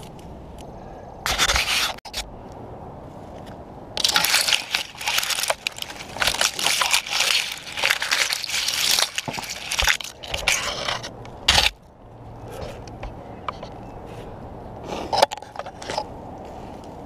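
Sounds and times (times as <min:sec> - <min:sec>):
branches scraping and crackling: 0:00.0 - 0:17.0
dry twigs snapping: 0:03.3 - 0:11.9.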